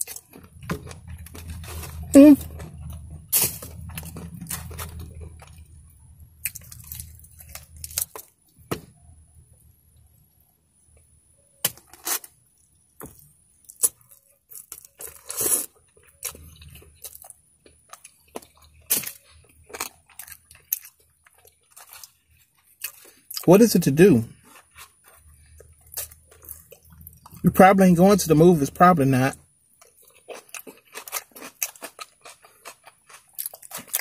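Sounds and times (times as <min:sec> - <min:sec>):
crunching fried chicken: 0:00.0 - 0:10.2, 0:10.9 - 0:34.0
chewing and lip smacks: 0:02.4 - 0:08.3, 0:29.7 - 0:34.0.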